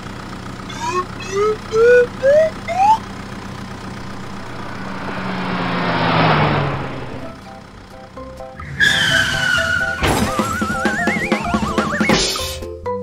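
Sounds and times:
engine idle hum: 0.0 - 8.4
rising whistle-like tones: 4.0 - 7.5
rising whoosh: 4.0 - 7.6.

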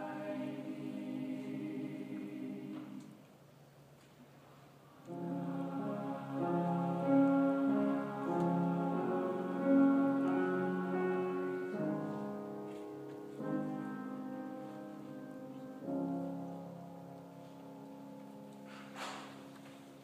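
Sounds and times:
mixed choir singing chords: 0.0 - 3.3, 5.0 - 12.5.

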